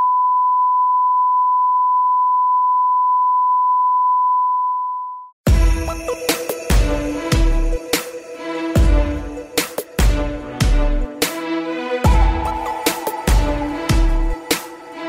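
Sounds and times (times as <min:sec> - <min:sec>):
steady test tone beep: 0:00.0 - 0:05.3
music with heavy beat: 0:05.5 - 0:11.5, 0:12.1 - 0:15.0.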